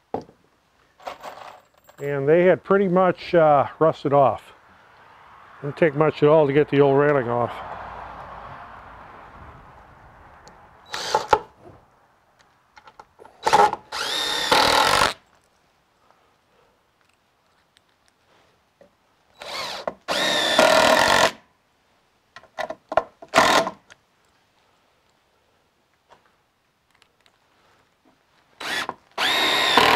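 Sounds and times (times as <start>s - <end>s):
drill driving screws into wood: 10.9s - 11.5s, 13.4s - 15.2s, 19.4s - 21.4s, 23.3s - 23.8s, 28.6s - 29.9s.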